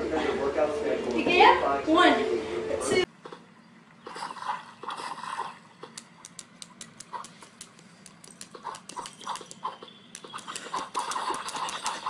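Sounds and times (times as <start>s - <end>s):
dog claws tapping on glass screen: 5.9s - 12.0s.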